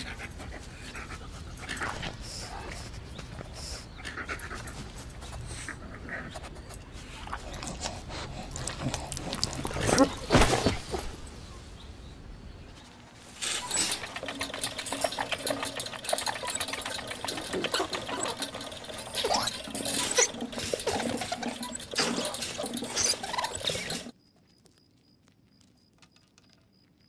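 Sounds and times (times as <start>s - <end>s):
exercise wheel rattling and clicking: 13.4s - 24.2s.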